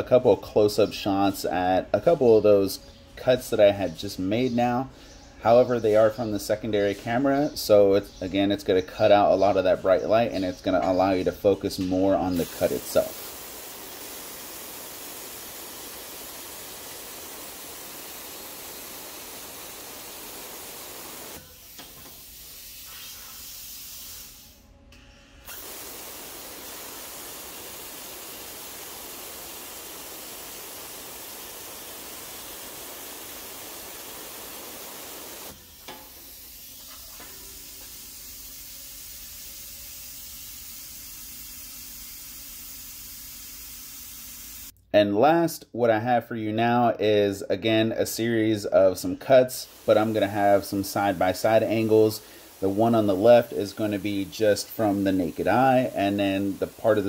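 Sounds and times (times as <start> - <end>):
plasma cutter arc hissing: 12.3 - 24.6, 25.4 - 44.7, 49.2 - 57.0.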